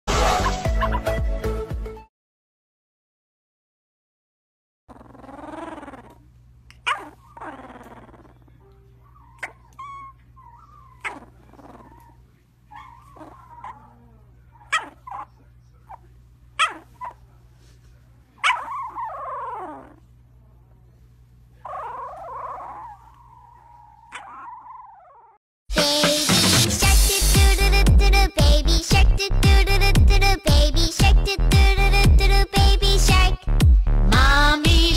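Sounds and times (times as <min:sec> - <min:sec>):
puppy whining: 0:04.9 - 0:17.3, 0:18.4 - 0:20.2, 0:21.6 - 0:25.4
puppy yipping: 0:05.0 - 0:08.5, 0:09.1 - 0:17.2, 0:18.4 - 0:20.0, 0:21.6 - 0:25.4.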